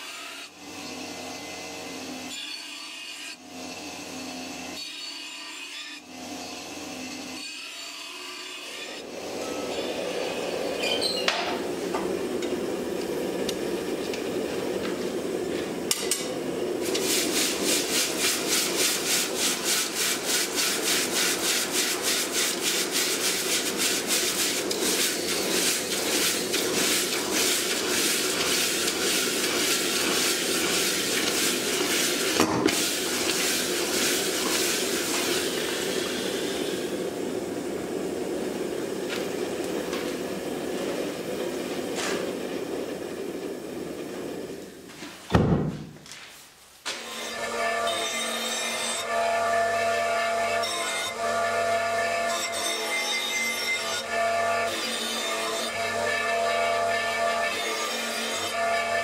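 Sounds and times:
steady hum: 11.4s - 44.8s
hot metal quenching hiss and bubbling: 15.8s - 39.5s.

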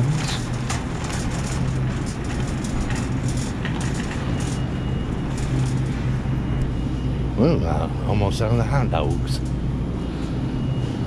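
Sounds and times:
shopping cart rattling: 0.0s - 5.9s
low constant hum: 0.0s - 11.0s.

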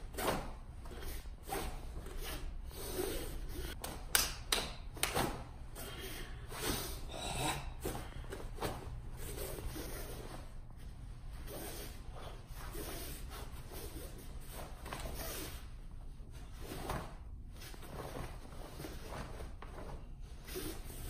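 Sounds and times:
fabric snaps: 3.8s - 5.5s
forceful breathing: 5.7s - 10.5s
heavy uniform rustling: 7.9s - 21.0s.

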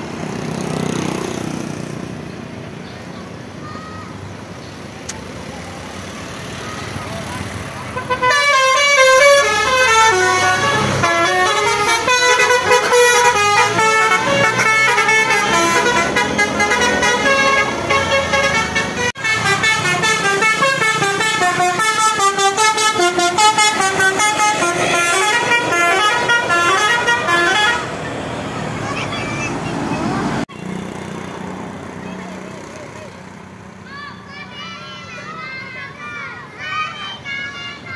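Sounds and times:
bus air horn playing a tune: 7.9s - 28.0s.

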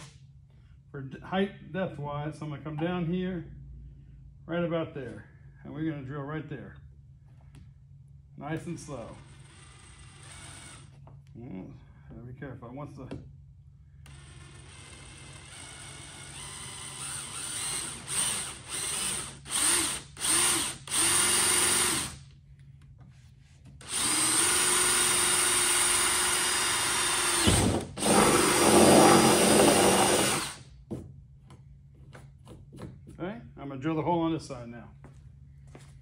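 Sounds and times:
cordless drill boring plastic: 9.4s - 10.9s, 14.1s - 22.2s, 23.8s - 30.6s.

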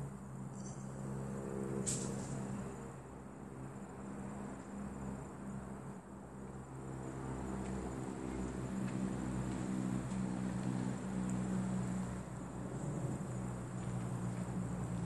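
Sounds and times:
low mechanical hum: 0.0s - 15.0s.

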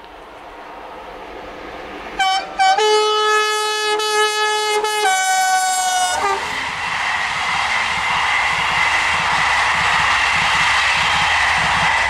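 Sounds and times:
train coaches rolling past: 0.0s - 12.0s
locomotive horn blasts: 2.2s - 6.5s.

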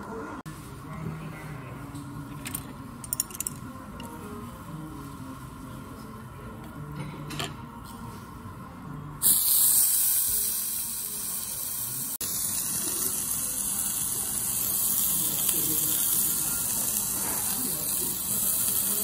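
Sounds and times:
meat sizzling on a grill: 9.2s - 19.0s.

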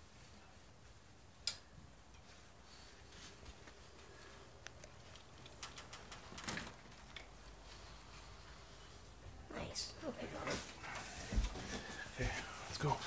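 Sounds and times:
curtain rustling: 2.2s - 9.2s, 10.0s - 13.0s
curtain rod clicks: 5.3s - 7.4s.

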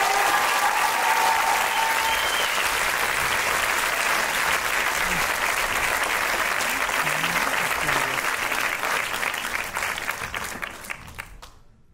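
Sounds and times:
audience cheering: 0.0s - 9.3s
audience applauding: 0.0s - 11.6s.

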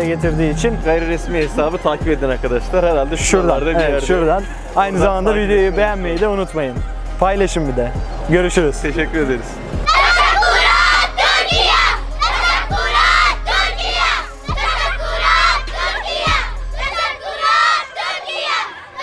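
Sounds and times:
girls shouting and cheering: 9.8s - 19.0s.

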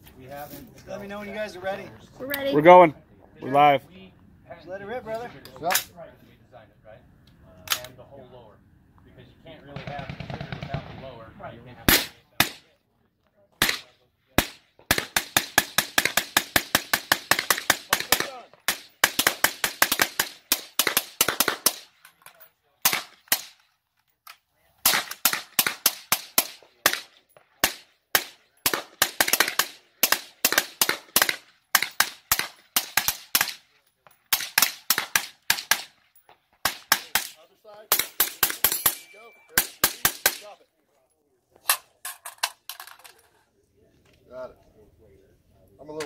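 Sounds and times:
suppressed rifle shots: 9.8s - 11.1s.

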